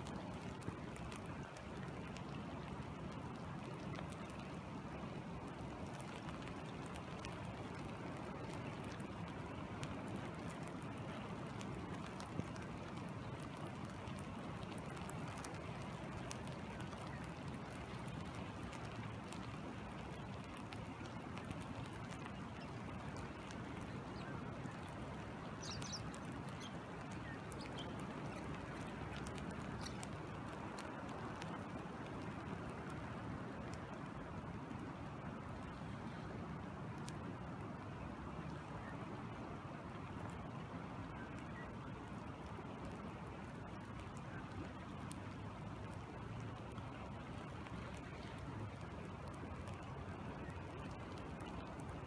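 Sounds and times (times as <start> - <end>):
flowing river: 0.0 - 52.0
rain falling on water: 0.0 - 52.0.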